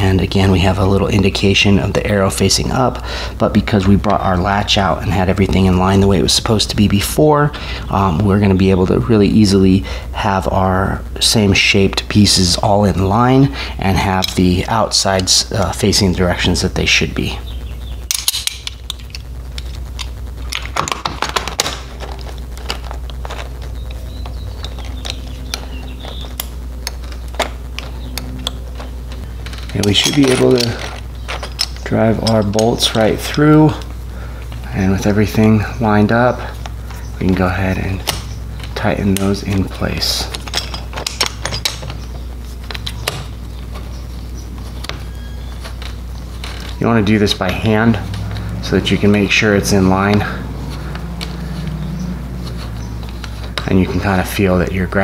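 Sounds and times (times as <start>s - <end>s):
steady low hum: 0.0s - 55.0s
lock parts clicking: 18.0s - 34.7s, 36.0s - 54.2s
screwdriver metal clicks and clinks: 18.1s - 20.1s, 24.7s - 33.5s, 40.3s - 43.3s.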